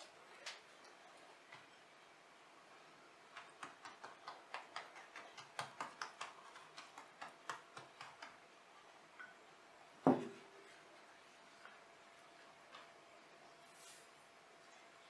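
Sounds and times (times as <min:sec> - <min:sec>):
pastry brush tapping pastry: 0:03.3 - 0:08.5
thump: 0:10.1 - 0:10.4.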